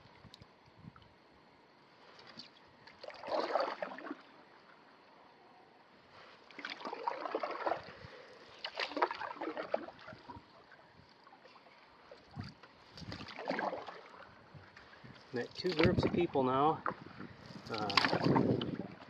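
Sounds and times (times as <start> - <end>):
paddle strokes splashing in water: 2.1 - 4.4, 6.4 - 19.0.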